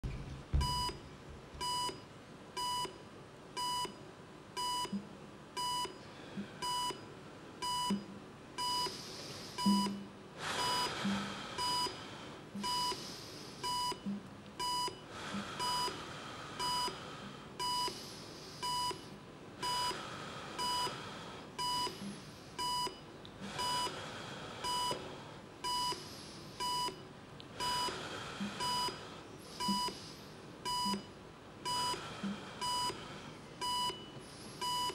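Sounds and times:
heart rate monitor beeping: 0:00.0 - 0:03.0, 0:03.6 - 0:04.0, 0:04.6 - 0:06.0, 0:06.6 - 0:09.0, 0:09.6 - 0:12.0, 0:12.6 - 0:13.0, 0:13.6 - 0:16.0, 0:16.6 - 0:17.0, 0:17.6 - 0:18.0, 0:18.6 - 0:20.0, 0:20.6 - 0:21.0, 0:21.6 - 0:24.0, 0:24.6 - 0:25.0, 0:25.6 - 0:33.0, 0:33.6 - 0:34.9.

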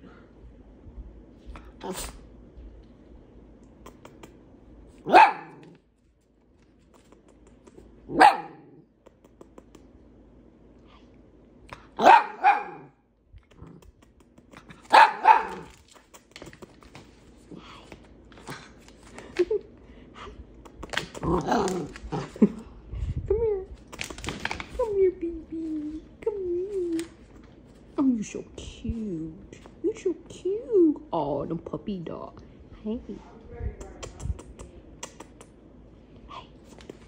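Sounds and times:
puppy barking: 0:05.0 - 0:05.7, 0:08.1 - 0:08.8, 0:12.0 - 0:13.0, 0:14.8 - 0:15.7.

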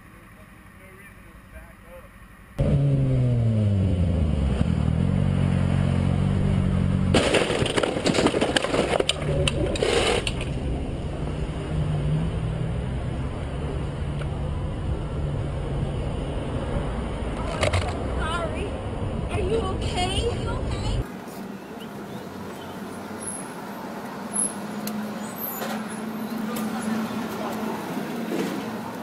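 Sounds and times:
motorcycle crash scraping impact: 0:07.0 - 0:10.6.

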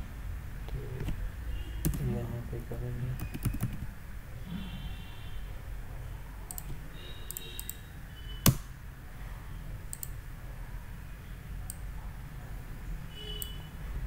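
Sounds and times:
computer mouse clicks: 0:06.5 - 0:07.8, 0:09.9 - 0:10.2.

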